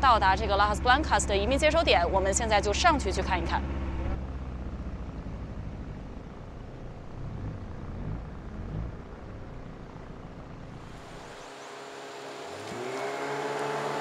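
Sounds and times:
outboard motor droning: 0:00.0 - 0:14.0
water noise: 0:07.1 - 0:14.0.

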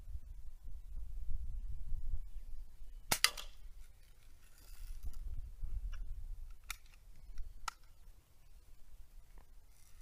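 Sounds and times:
wind rumble on microphone: 0:00.0 - 0:03.8, 0:04.7 - 0:07.7
bb gun firing snap: 0:03.1 - 0:03.6
metallic clicks of gun handling: 0:06.4 - 0:08.0.

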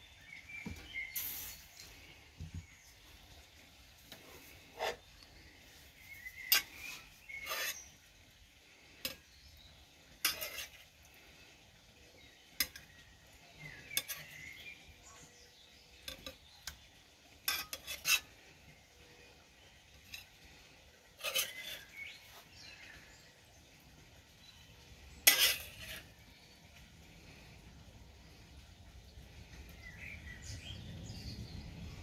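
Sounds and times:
utensil clinking on pan and plate: 0:06.2 - 0:08.0, 0:09.0 - 0:09.5, 0:10.1 - 0:10.8, 0:12.5 - 0:13.0, 0:13.6 - 0:14.7, 0:15.9 - 0:16.8, 0:17.4 - 0:18.4, 0:21.2 - 0:22.2, 0:25.1 - 0:26.1.

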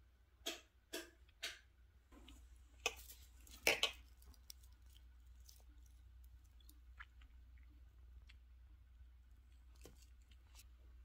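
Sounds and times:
low steady hum: 0:00.0 - 0:11.0
rustling leaves being handled: 0:02.8 - 0:06.8.

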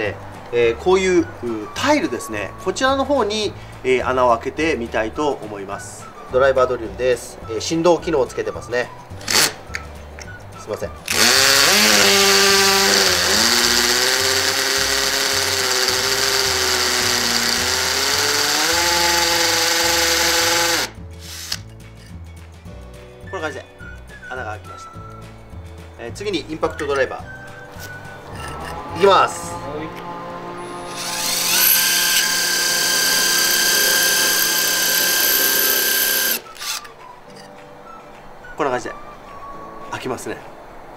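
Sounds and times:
hammer drill drilling tile: 0:11.1 - 0:21.6, 0:30.9 - 0:36.9.

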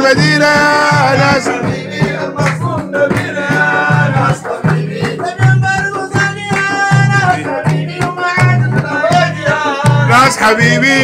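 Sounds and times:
men chanting in unison: 0:00.0 - 0:11.0.

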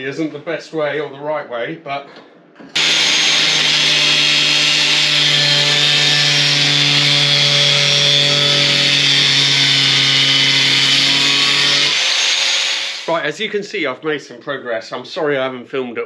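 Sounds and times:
angle grinder cutting sheet steel: 0:02.8 - 0:13.2.

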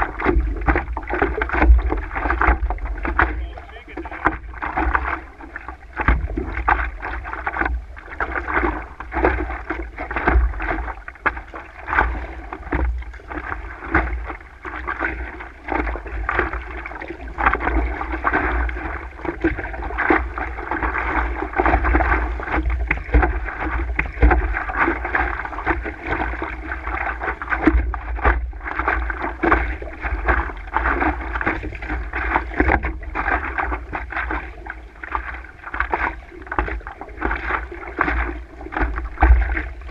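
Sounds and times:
paddle splashes: 0:00.0 - 0:39.9
water slapping against board: 0:00.0 - 0:39.9.

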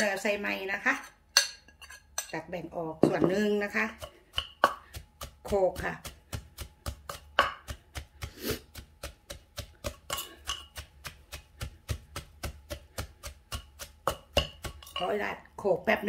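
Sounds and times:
wooden pestle pounding in mortar: 0:03.0 - 0:16.0.

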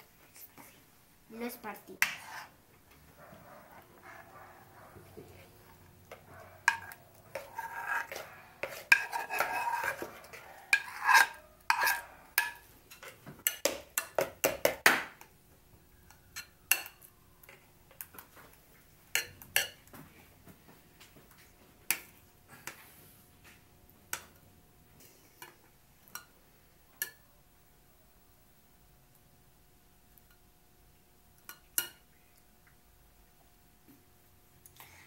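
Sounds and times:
spoon scraping frying pan: 0:02.0 - 0:02.6, 0:05.2 - 0:14.2.

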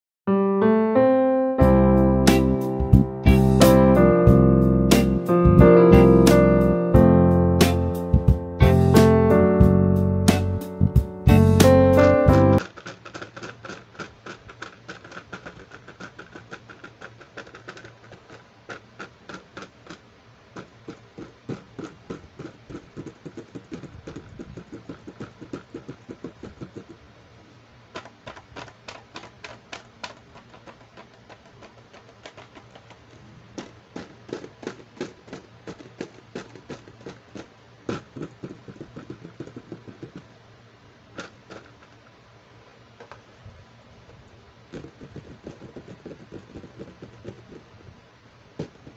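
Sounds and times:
fingernails tapping on plastic case: 0:28.0 - 0:40.3.

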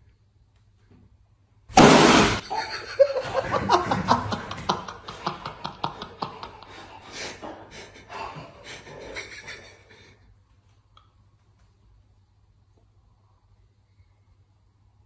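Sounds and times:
breathy panting laughter: 0:02.5 - 0:10.3.

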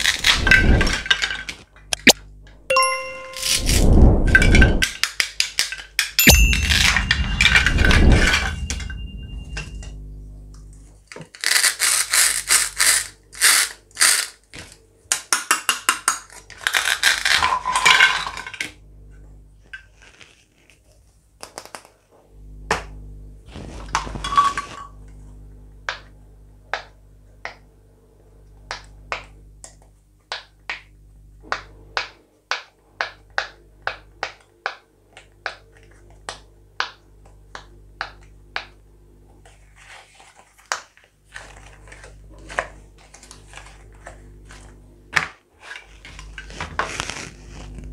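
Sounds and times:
ringing bell sound effect: 0:02.7 - 0:03.9, 0:06.2 - 0:09.8
plastic toy pieces clattering: 0:11.3 - 0:14.4, 0:15.5 - 0:18.7.

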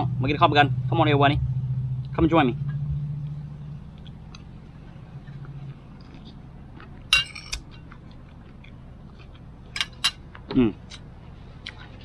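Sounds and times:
low steady hum: 0:00.0 - 0:12.0
metal spoon clinking on plate: 0:07.1 - 0:07.8, 0:09.8 - 0:10.2.

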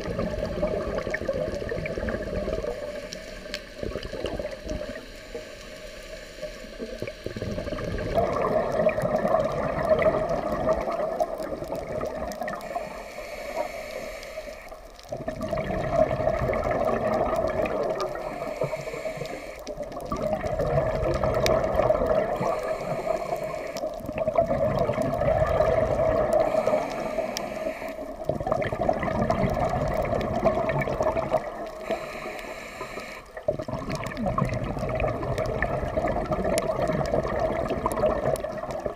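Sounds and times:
exhaled bubbles rushing: 0:00.0 - 0:03.0, 0:03.8 - 0:05.0, 0:06.8 - 0:12.7, 0:15.0 - 0:18.5, 0:19.7 - 0:27.4, 0:28.0 - 0:32.0, 0:33.3 - 0:38.9
diver breathing through regulator: 0:12.6 - 0:15.0, 0:18.0 - 0:19.7, 0:22.3 - 0:24.0, 0:26.1 - 0:28.2, 0:31.6 - 0:33.5.

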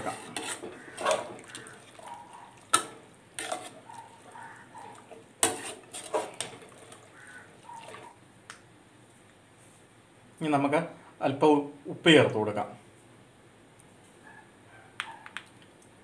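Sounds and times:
spoon scraping a pot: 0:00.0 - 0:08.1.

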